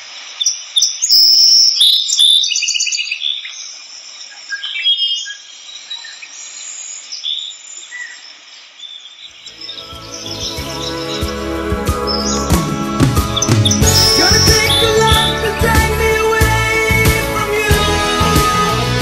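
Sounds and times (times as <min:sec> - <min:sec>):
insect hiss: 0:00.0 - 0:09.8
tropical bird calls and trills: 0:00.3 - 0:11.3, 0:13.7 - 0:15.3.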